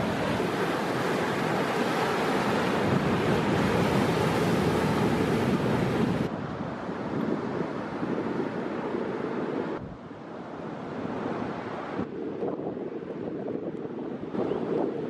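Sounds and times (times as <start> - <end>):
ocean surf breaking over rocks: 0.0 - 9.7.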